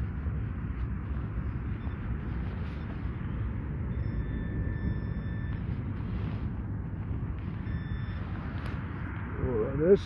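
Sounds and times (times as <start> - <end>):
wind rumble on microphone: 0.0 - 10.0
faint electronic beep: 1.4 - 6.4, 7.4 - 9.6.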